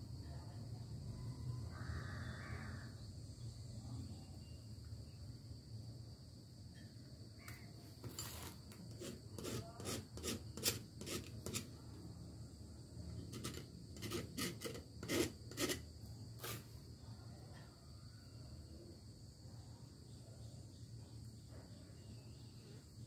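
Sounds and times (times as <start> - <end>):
hands scraping and clicking: 13.3 - 15.8.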